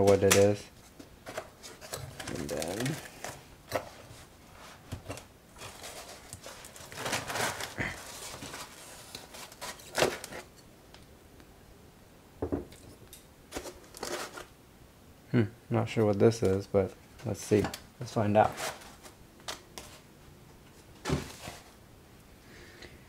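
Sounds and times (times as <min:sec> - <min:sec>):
foam rubbing and rustling: 0:01.6 - 0:10.5, 0:18.3 - 0:19.2.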